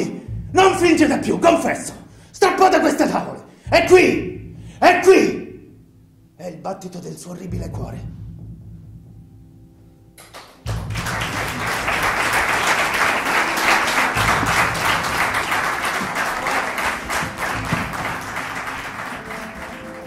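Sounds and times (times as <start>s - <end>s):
soft music: 0.0s - 20.0s
audience applauding: 10.2s - 20.0s.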